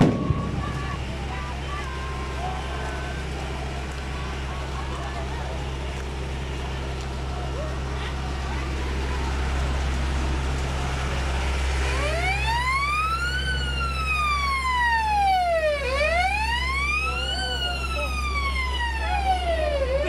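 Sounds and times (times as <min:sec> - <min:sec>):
police siren wailing: 0:00.0 - 0:05.5, 0:10.9 - 0:20.0.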